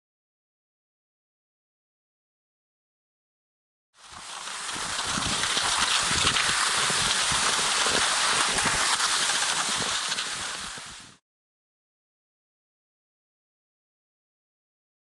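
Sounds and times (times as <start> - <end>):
skis rushing over snow: 4.0 - 11.2.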